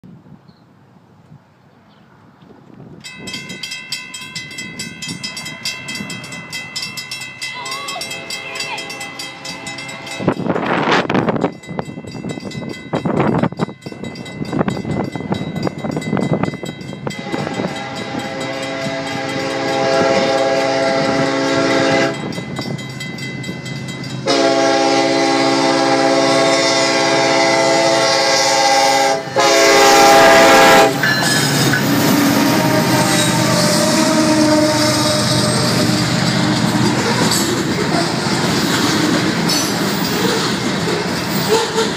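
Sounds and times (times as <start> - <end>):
railroad crossing bells ringing: 3.0 - 41.9
locomotive air horn: 17.1 - 22.3, 24.2 - 31.1, 32.0 - 37.3.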